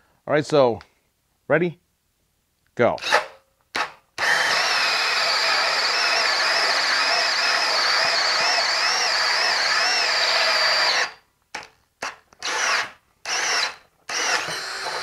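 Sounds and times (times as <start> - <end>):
drill with hole saw cutting wood: 3.0 - 11.2, 12.0 - 15.0.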